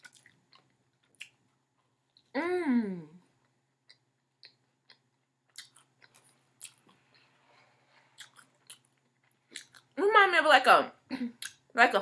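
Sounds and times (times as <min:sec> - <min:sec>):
person chewing: 0:00.0 - 0:02.3, 0:03.4 - 0:10.0
mouth clicks and smacks: 0:03.8 - 0:07.0.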